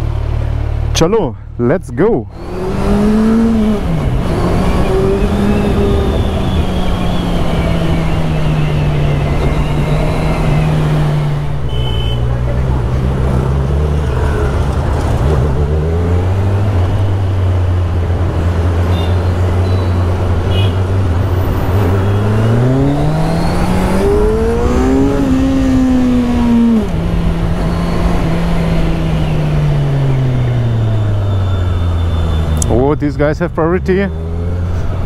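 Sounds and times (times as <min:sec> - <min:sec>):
wind and road noise: 0:00.0 - 0:35.0
motorcycle engine accelerating: 0:02.3 - 0:35.0.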